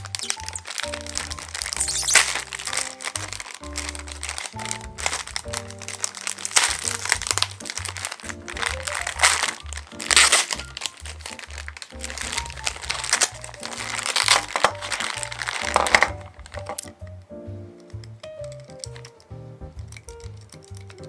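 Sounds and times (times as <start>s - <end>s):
plastic bags crinkling: 0.0s - 17.2s, 18.4s - 19.2s
music with stepping bass line: 6.6s - 13.6s.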